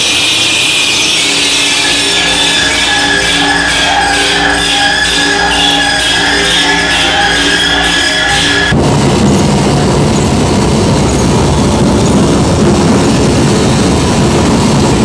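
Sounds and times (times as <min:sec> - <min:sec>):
sustained musical tones: 0:00.0 - 0:08.8
heavy mechanical rumble: 0:00.0 - 0:15.0.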